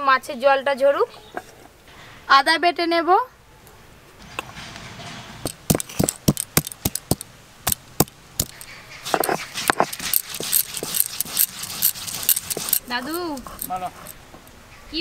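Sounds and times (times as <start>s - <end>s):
stone rubbing and scraping: 4.5s - 14.2s
stone knocking on stone slab: 5.5s - 11.0s.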